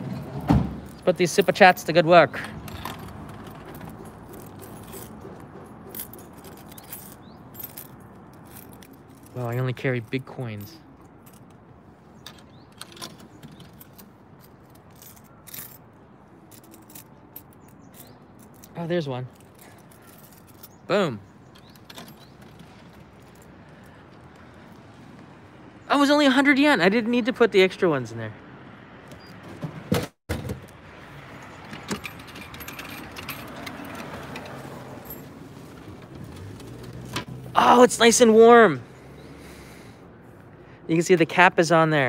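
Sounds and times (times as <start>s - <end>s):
metallic clicking and rattling: 2.3s - 9.4s, 12.2s - 15.8s, 21.5s - 23.5s, 31.4s - 37.3s
coins clinking through coin slot: 12.2s - 15.8s, 31.6s - 35.2s.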